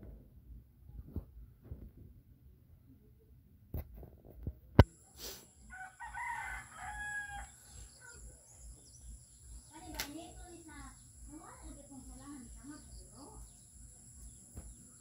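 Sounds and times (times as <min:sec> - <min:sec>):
rooster crowing: 0:05.7 - 0:07.9.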